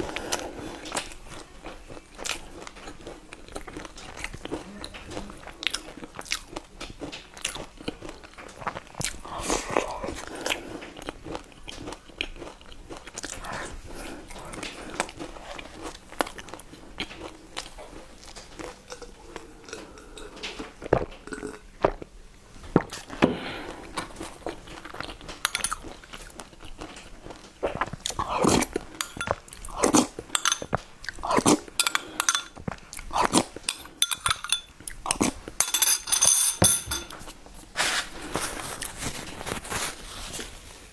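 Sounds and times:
tissue rustling: 0:37.6 - 0:40.9.

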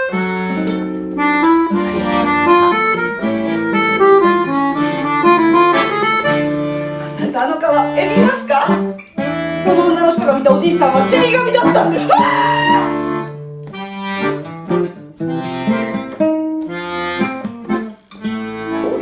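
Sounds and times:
accordion playing melody: 0:00.0 - 0:19.0.

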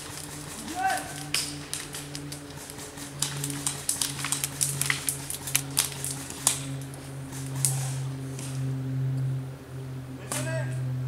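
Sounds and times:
airsoft gunfire clicks and snaps: 0:00.0 - 0:08.5
steady low hum: 0:00.0 - 0:11.0.

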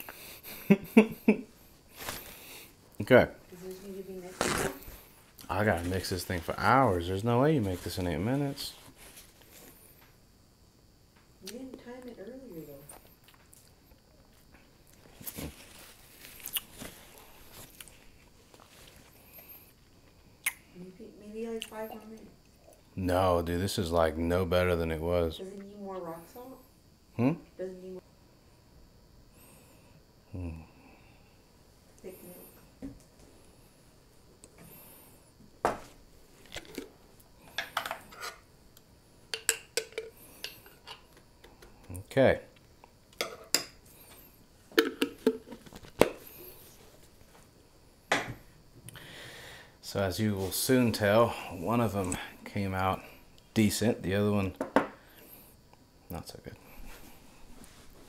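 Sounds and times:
spoon scraping a bowl: 0:37.8 - 0:38.4.

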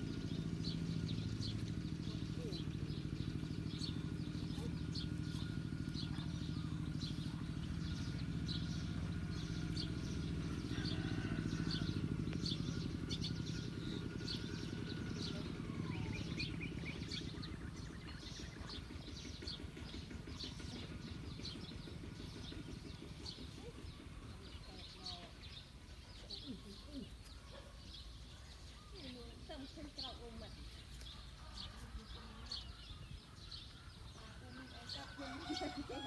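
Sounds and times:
bird chirping: 0:00.0 - 0:36.0
engine humming: 0:00.0 - 0:36.0.

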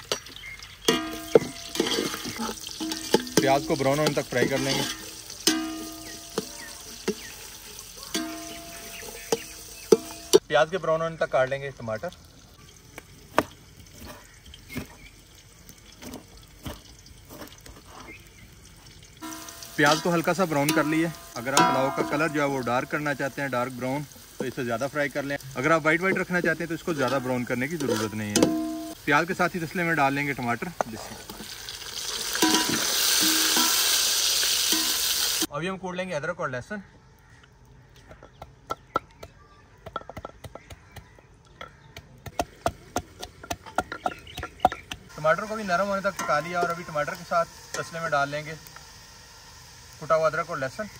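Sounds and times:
pestle pounding in mortar: 0:38.1 - 0:45.1.

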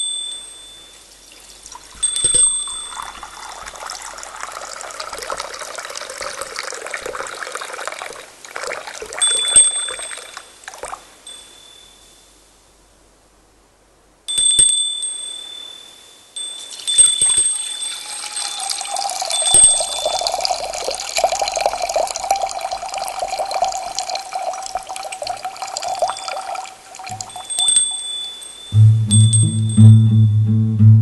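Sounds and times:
high ringing chime: 0:00.0 - 0:01.4, 0:02.0 - 0:04.2, 0:09.2 - 0:10.6, 0:11.2 - 0:12.4, 0:14.3 - 0:21.8, 0:25.6 - 0:30.5
water trickling and splashing: 0:01.0 - 0:11.1, 0:16.7 - 0:28.5.

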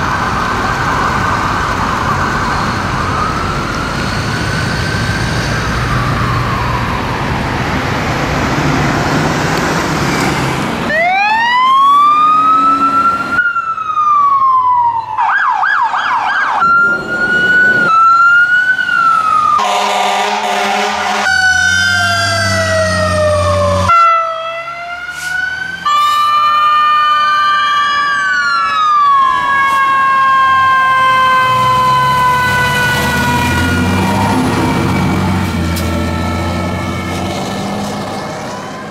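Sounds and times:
siren yelp: 0:00.0 - 0:08.0, 0:10.9 - 0:38.9
diesel engine rumbling: 0:00.0 - 0:13.4, 0:16.6 - 0:38.9
fire truck siren wailing: 0:00.0 - 0:38.9
horn blast: 0:19.6 - 0:21.6.

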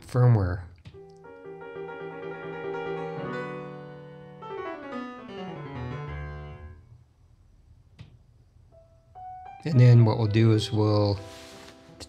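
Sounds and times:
piano-like keyboard music: 0:00.9 - 0:06.8, 0:08.7 - 0:12.0.

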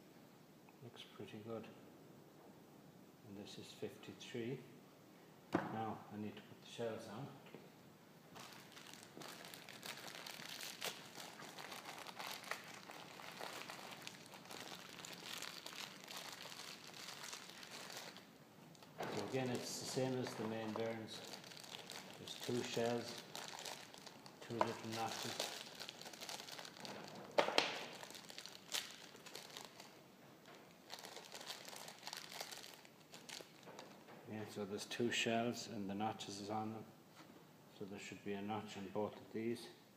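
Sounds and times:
plastic packaging crinkling: 0:08.3 - 0:34.0.

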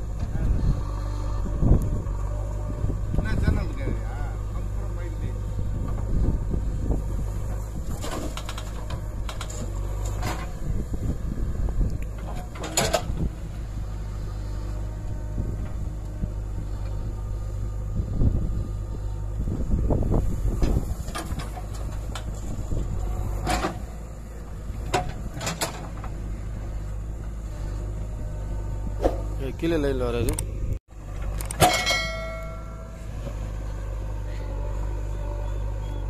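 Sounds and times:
diesel engine and hydraulics droning: 0:00.0 - 0:36.0
metallic clanks of bucket: 0:31.4 - 0:32.8.

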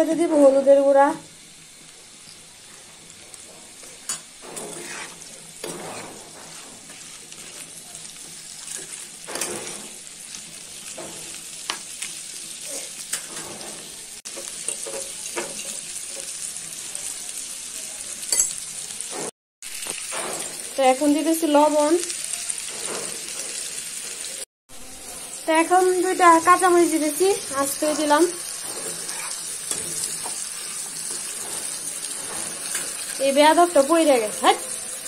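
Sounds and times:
soft frying sizzle: 0:00.0 - 0:35.0
metal spatula scraping frying pan: 0:03.3 - 0:10.0, 0:22.7 - 0:24.2, 0:27.5 - 0:33.6.

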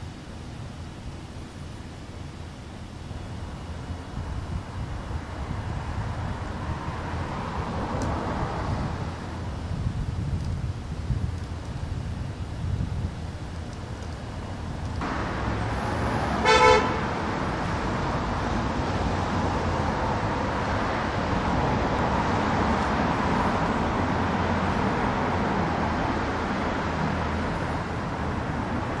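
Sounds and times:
city traffic noise: 0:00.0 - 0:29.0
car horn toot: 0:16.4 - 0:17.1.

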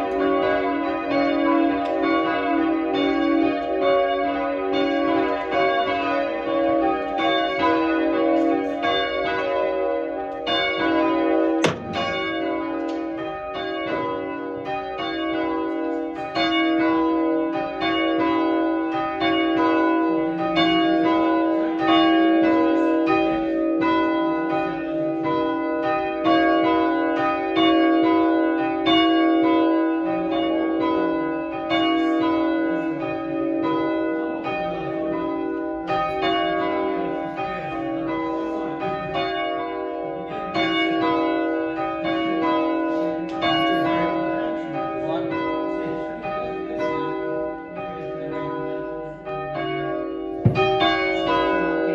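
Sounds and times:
church bells ringing: 0:00.0 - 0:51.9.

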